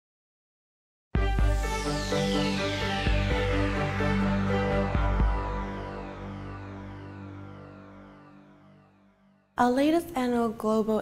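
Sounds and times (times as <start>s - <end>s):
electronic intro music: 1.2s - 9.6s
high falling sweep: 1.4s - 9.3s.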